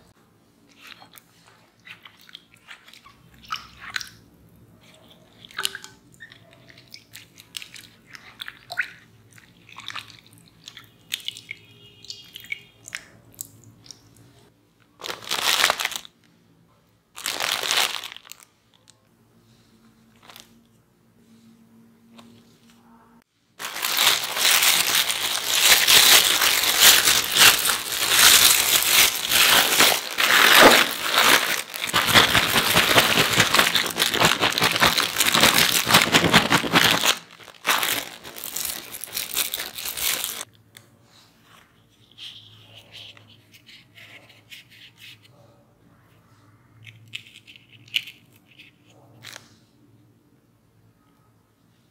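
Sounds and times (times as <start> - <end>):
plastic bag crinkling: 15.0 - 16.2, 17.2 - 18.5, 20.2 - 20.6, 23.6 - 40.5.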